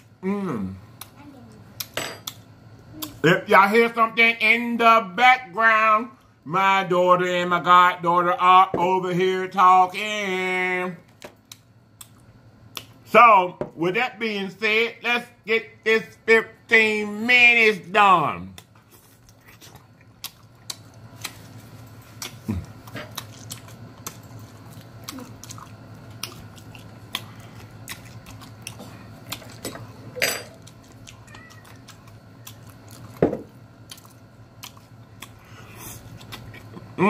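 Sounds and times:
person chewing wetly: 18.6 - 37.0.

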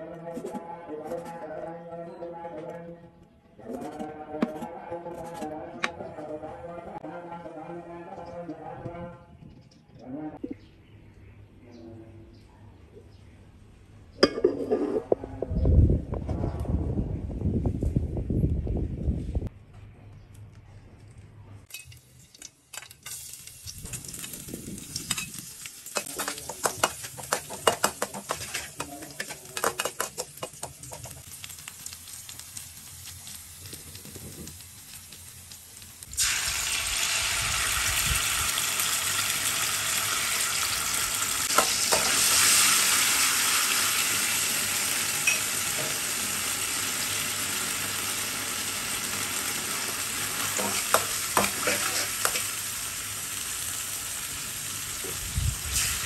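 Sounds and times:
garlic frying in oil: 21.7 - 56.0
loud steady sizzle: 21.7 - 56.0
stirring clicks and scrapes: 25.9 - 31.9, 50.6 - 52.5.

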